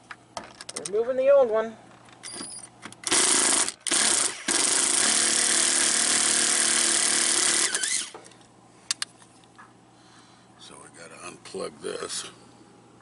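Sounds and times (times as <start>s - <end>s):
cordless driver backing out screws: 2.3s - 8.2s.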